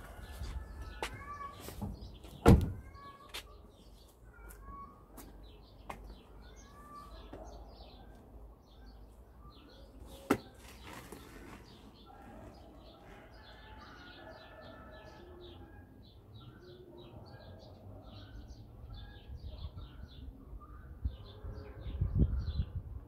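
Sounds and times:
birds chirping: 0:00.0 - 0:22.8.

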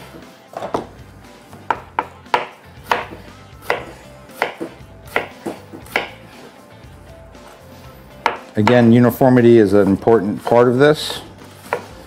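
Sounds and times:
knife striking cutting board: 0:01.7 - 0:06.2, 0:08.2 - 0:08.9, 0:10.4 - 0:12.0.

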